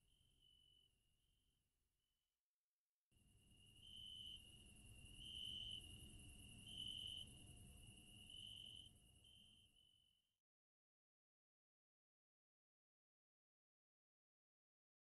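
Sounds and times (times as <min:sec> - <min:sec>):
cricket chirping: 0:00.0 - 0:01.0, 0:03.2 - 0:10.2.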